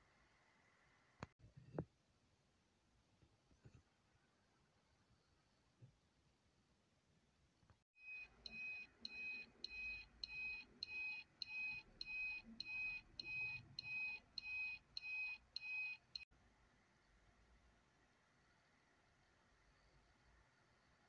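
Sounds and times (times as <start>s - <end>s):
electronic beeping: 8.0s - 16.2s.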